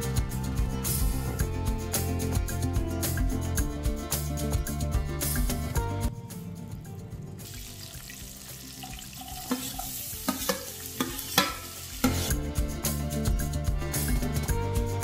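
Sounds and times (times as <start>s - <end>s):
background music: 0.0s - 15.0s
onions sizzling in hot oil: 7.4s - 12.3s
knocks against pan: 10.3s - 12.2s.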